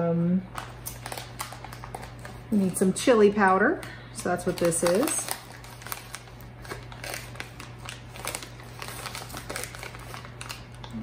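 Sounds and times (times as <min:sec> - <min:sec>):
plastic bag crinkling: 0:00.5 - 0:11.0.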